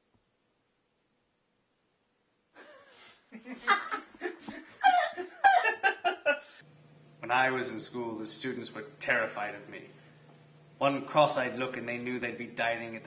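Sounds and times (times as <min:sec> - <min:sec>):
woman and man laughing: 0:02.6 - 0:06.6.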